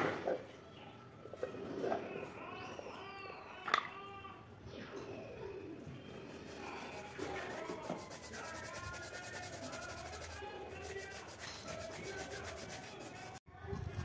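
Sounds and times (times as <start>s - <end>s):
wet shoe being scrubbed: 6.2s - 13.4s.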